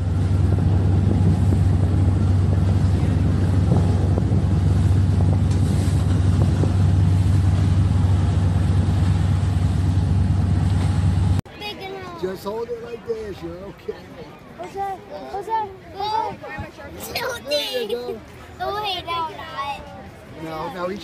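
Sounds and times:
outboard engine running: 0.0s - 11.4s
wind buffeting microphone: 0.0s - 11.4s.

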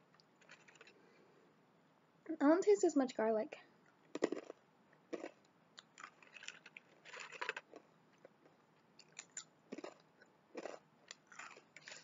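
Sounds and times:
crunchy snacks being chewed: 0.4s - 1.0s, 4.1s - 12.0s.

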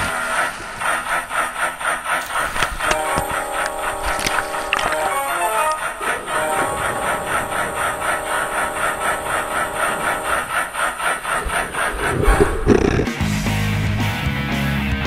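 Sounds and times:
fast rasping rhythm: 1.7s - 14.9s
background music: 2.8s - 10.6s, 13.1s - 15.0s.

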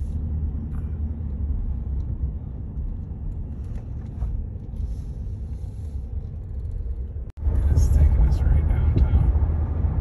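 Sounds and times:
vehicle road and engine rumble: 0.0s - 10.0s.

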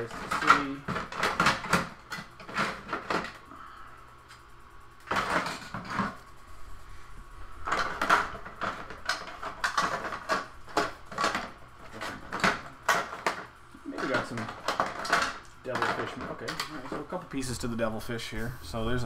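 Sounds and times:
plastic toy parts clattering: 0.0s - 3.4s, 7.7s - 17.0s.

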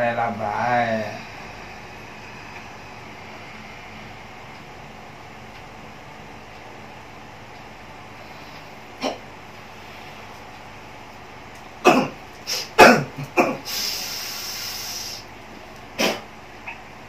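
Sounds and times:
long hiss of breath: 12.4s - 12.8s, 13.6s - 15.3s.

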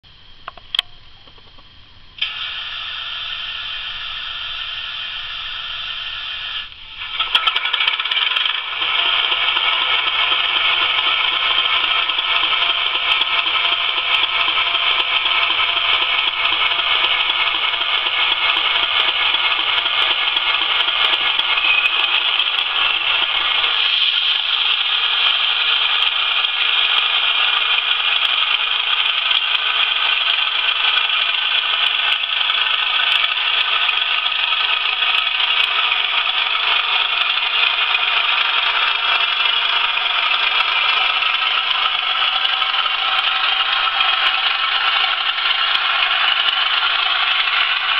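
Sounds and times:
thin diesel engine drone: 2.2s - 29.1s, 34.6s - 47.9s.

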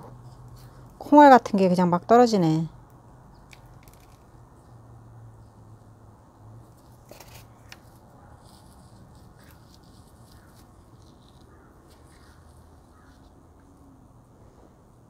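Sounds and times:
scraping and rustling of soil: 6.6s - 13.5s.

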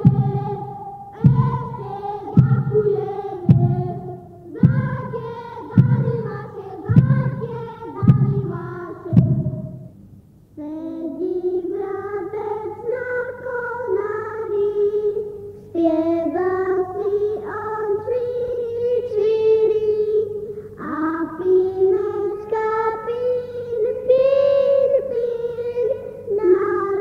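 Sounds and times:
group singing carols: 0.0s - 9.7s
high voices singing: 0.0s - 10.0s, 10.6s - 27.0s
heavy thumps on floor: 3.5s - 4.0s, 4.6s - 9.8s.

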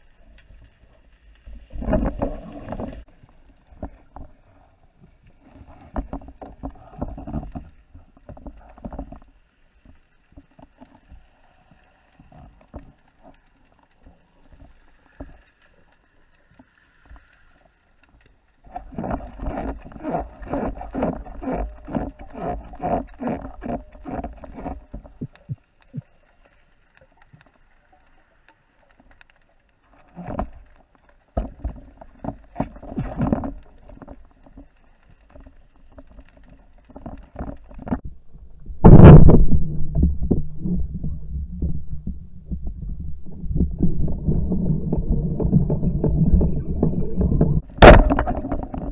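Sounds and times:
water churning with low rumble: 0.0s - 48.9s
speargun firing crack underwater: 47.8s - 48.9s.

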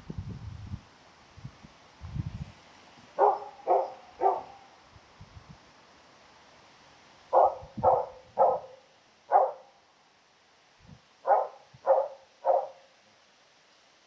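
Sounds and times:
dog barking: 3.2s - 4.7s, 7.3s - 9.7s, 11.2s - 12.9s.

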